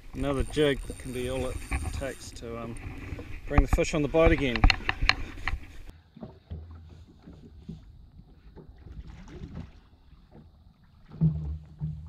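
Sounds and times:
water sloshing against hull: 0.0s - 12.0s
fishing reel ticking: 0.1s - 5.9s.

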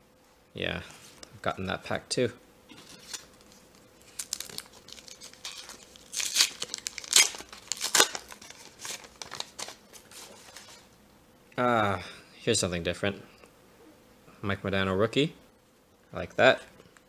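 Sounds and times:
foil wrapper crinkling and tearing: 2.8s - 10.8s.

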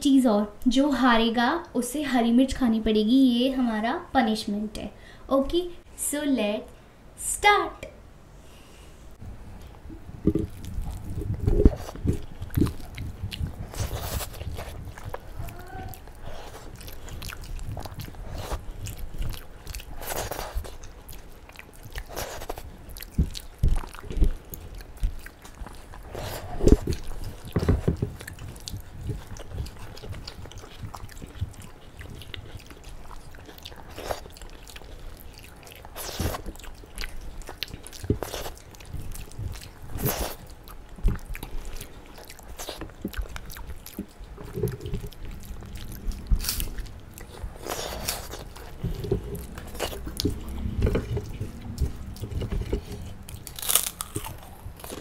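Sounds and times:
wet chewing: 9.6s - 55.0s.

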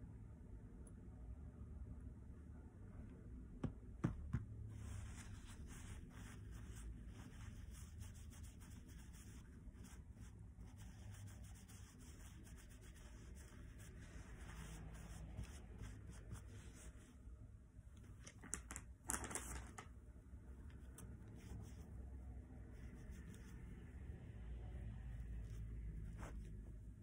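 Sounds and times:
tissue rubbing on silicone skin: 4.6s - 17.2s, 20.8s - 27.0s.

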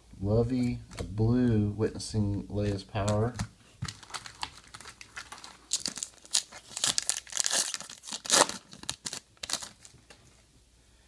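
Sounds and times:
card pack wrapper crinkling: 3.0s - 10.2s.

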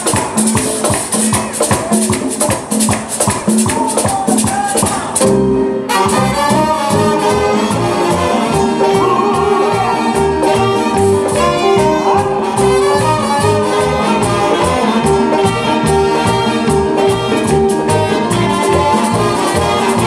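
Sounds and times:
hand percussion: 0.0s - 20.0s
salsa band playing: 0.0s - 20.0s.

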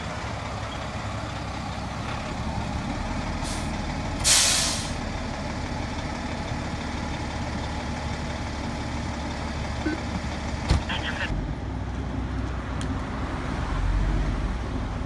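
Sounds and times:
diesel engine idling: 0.0s - 12.4s
air brakes hiss: 3.4s - 5.0s.

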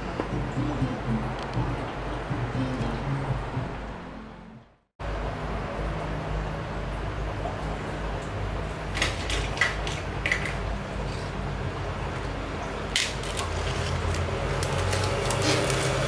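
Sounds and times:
steady low hum: 0.0s - 8.9s.

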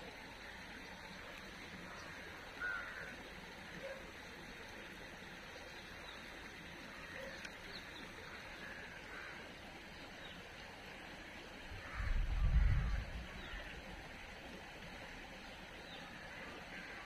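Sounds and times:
faint outdoor background hiss: 0.0s - 17.0s.

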